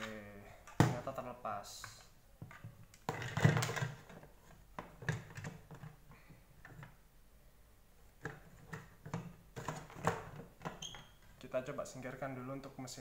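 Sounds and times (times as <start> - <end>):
plastic parts knocking: 2.4 - 6.0, 8.2 - 11.0.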